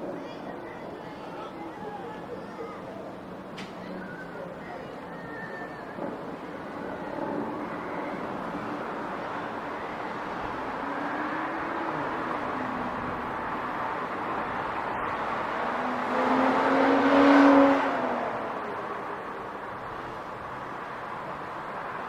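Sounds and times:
road noise: 0.0 - 22.0
vehicle engines passing: 0.0 - 22.0.

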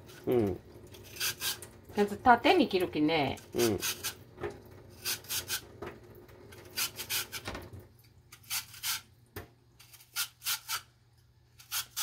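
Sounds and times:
blade rasping lotus root: 11.6 - 12.0.

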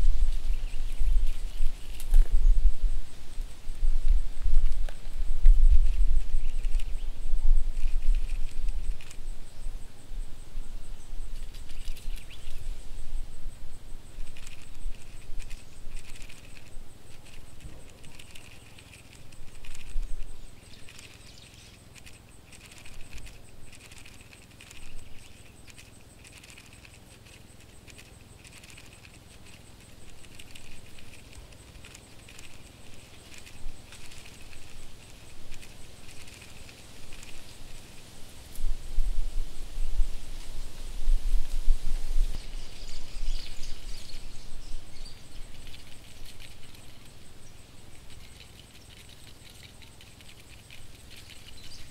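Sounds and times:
low steady hum: 0.0 - 51.9
insect scuttling clicks: 7.7 - 9.2, 11.4 - 12.6, 14.2 - 38.0, 47.8 - 51.9.

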